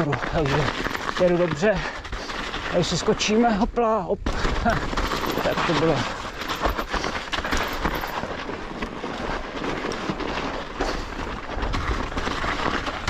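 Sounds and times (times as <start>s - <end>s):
bike rattling: 0.0s - 13.0s
bike tyres rolling over snow: 0.0s - 13.0s.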